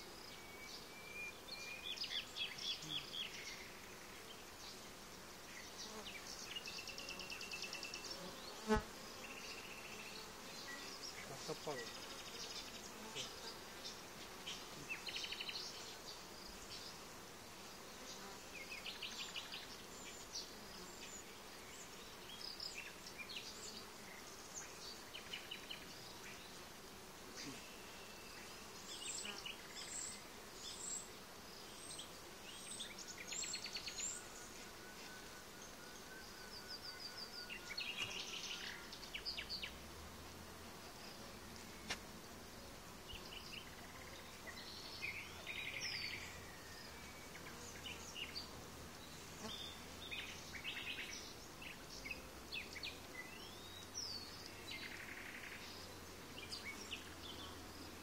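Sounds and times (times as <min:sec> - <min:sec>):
honeybees humming: 0:22.9 - 0:54.9.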